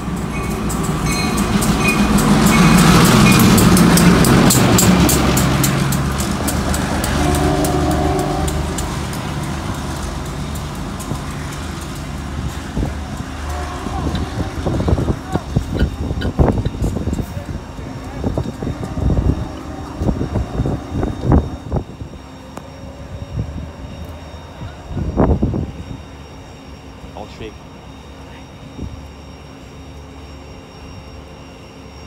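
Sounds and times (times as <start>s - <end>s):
train wheels clicking over rail joints: 0.0s - 21.8s
diesel locomotive engine: 0.0s - 32.0s.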